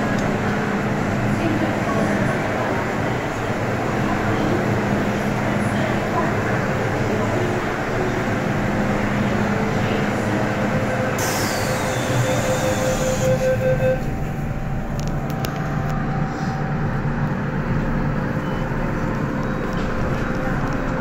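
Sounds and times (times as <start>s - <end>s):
train rumbling: 0.0s - 21.0s
sharp air hiss: 11.2s - 12.0s
pulsing tone: 11.2s - 14.3s.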